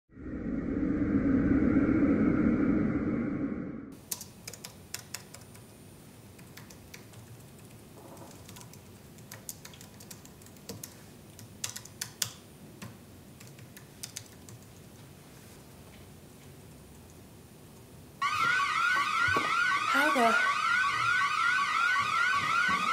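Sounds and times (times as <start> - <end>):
faint room hiss: 4.0 - 18.2
keyboard keystroke clicks: 8.3 - 14.7.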